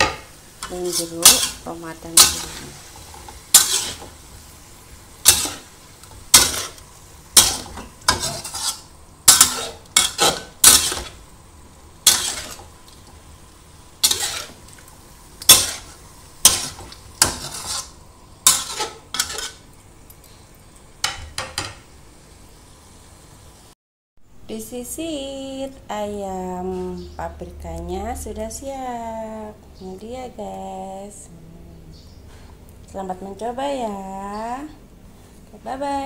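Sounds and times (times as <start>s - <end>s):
spatula scraping a wok: 0.0s - 4.5s, 5.2s - 11.2s, 12.0s - 13.2s, 14.0s - 14.8s, 15.4s - 19.7s
faint frying sizzle: 0.0s - 23.8s, 24.5s - 36.0s.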